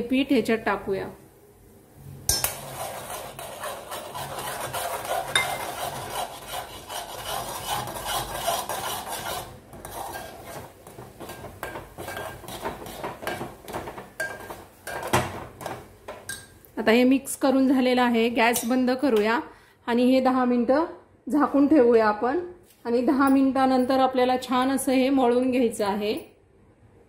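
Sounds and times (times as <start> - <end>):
spoon scraping in a metal pot: 2.3 - 16.5.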